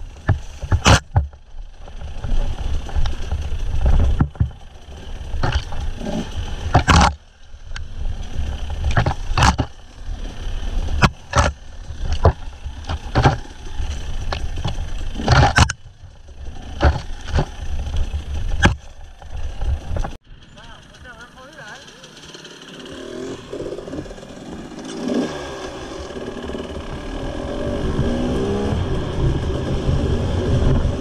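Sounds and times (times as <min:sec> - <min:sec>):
two-stroke motorcycle engine: 0:00.0 - 0:31.0
motorcycle knocking over rocks: 0:00.2 - 0:07.2, 0:08.4 - 0:10.1, 0:10.8 - 0:20.2.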